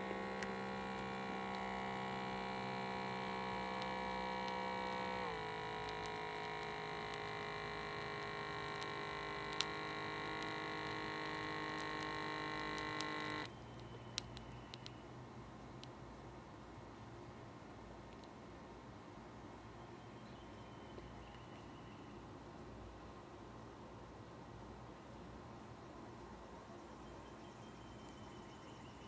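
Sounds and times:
small air pump running: 0.0s - 13.5s
faint ticks of cuff deflating: 0.0s - 14.9s.

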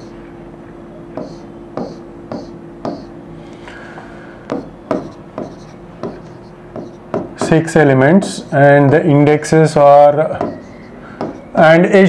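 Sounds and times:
low steady hum: 0.0s - 12.0s
pen tapping and scratching: 1.2s - 3.1s, 4.5s - 7.6s.

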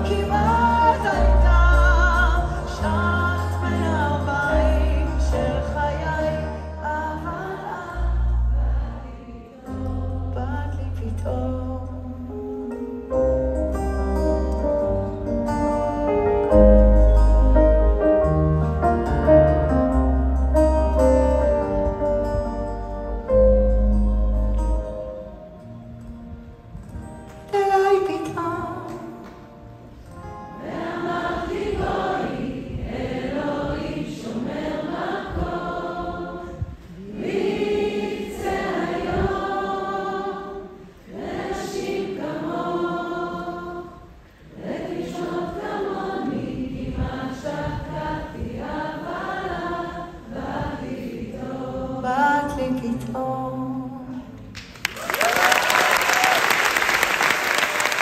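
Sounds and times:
group singing in harmony: 0.0s - 10.8s, 30.4s - 54.4s
audience applause: 54.6s - 58.0s.

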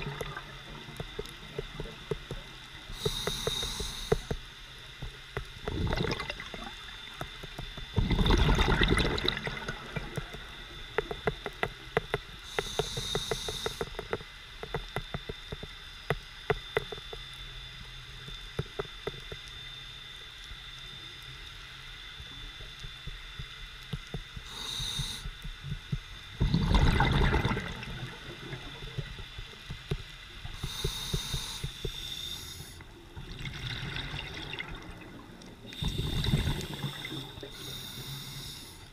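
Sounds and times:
exhaled bubbles gushing: 0.0s - 0.7s, 5.7s - 7.1s, 7.9s - 10.6s, 26.4s - 28.9s, 33.2s - 37.5s
fine underwater clicking and crackling: 0.0s - 38.9s
regulator inhalation hiss: 2.8s - 4.6s, 12.4s - 14.1s, 24.4s - 25.8s, 30.4s - 32.9s, 35.6s - 38.9s.

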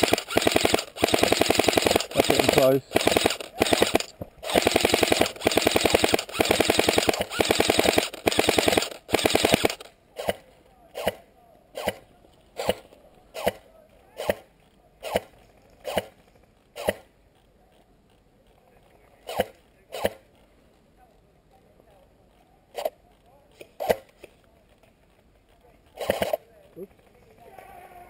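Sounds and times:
airsoft gun full-auto bursts: 0.0s - 11.2s, 12.6s - 13.6s, 14.2s - 16.2s, 19.3s - 20.2s, 25.9s - 26.4s.

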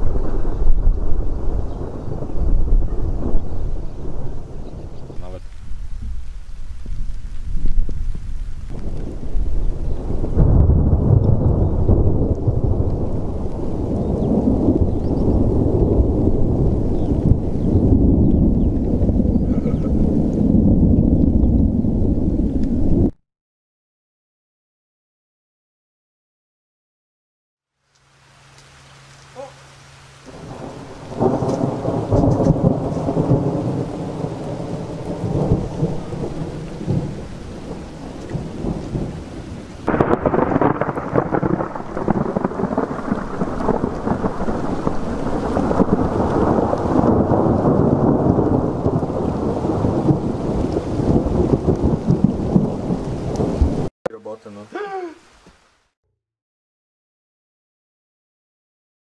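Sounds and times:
sharp thunder peal: 0.0s - 23.1s, 30.3s - 39.2s, 39.8s - 53.9s
thunder rumbling: 0.0s - 23.2s, 30.2s - 53.9s.

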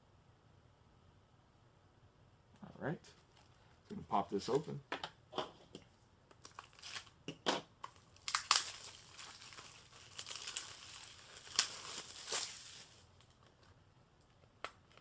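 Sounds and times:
plastic wrap tearing and crinkling: 6.4s - 7.2s, 7.8s - 13.7s.

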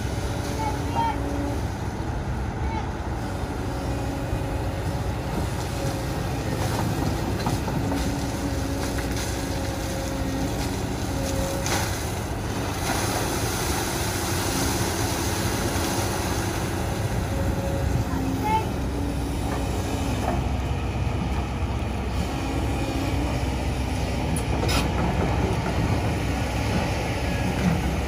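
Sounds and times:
excavator diesel engine under load: 0.0s - 28.0s.

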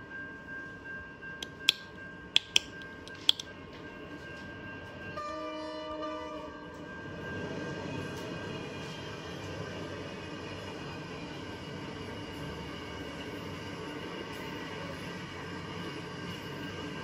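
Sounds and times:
sharp clicks: 1.4s - 3.5s
train horn: 5.2s - 6.8s.

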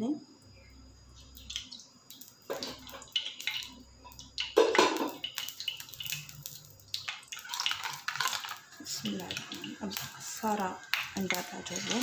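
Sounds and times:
oil crackling and spitting: 1.4s - 12.0s
kitchenware clatter: 2.5s - 3.8s, 4.4s - 6.2s, 7.1s - 9.8s, 10.8s - 12.0s.

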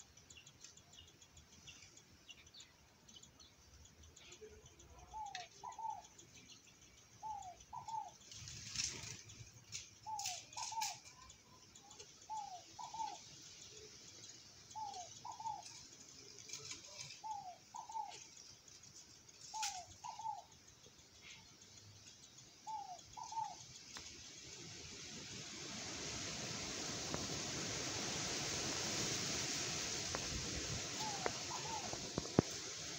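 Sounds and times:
sharp clicks: 0.0s - 17.4s, 18.0s - 24.6s
steady hiss: 0.0s - 32.9s
dove cooing softly: 5.0s - 6.1s, 7.2s - 8.1s, 10.1s - 11.0s, 12.3s - 13.2s, 14.8s - 15.8s, 16.7s - 18.2s, 19.5s - 20.5s, 22.7s - 23.6s, 30.9s - 32.6s.

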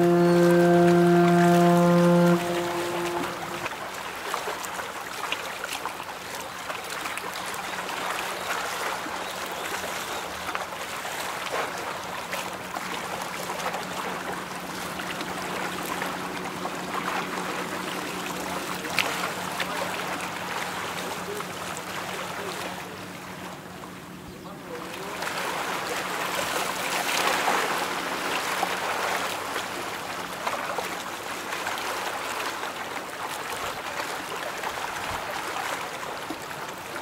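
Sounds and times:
low engine hum: 0.0s - 3.7s
bow wave splashing against hull: 0.0s - 3.8s, 10.9s - 24.1s.

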